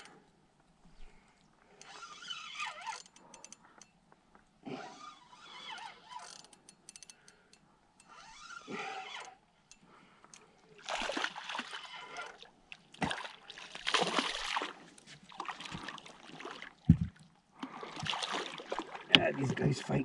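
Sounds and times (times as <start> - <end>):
fish splashing at the surface: 10.8 - 16.9, 17.8 - 19.2.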